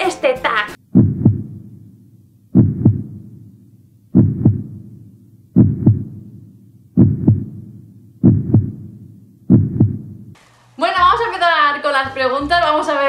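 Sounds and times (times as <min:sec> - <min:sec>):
heartbeat double thumps: 0:00.8 - 0:10.4.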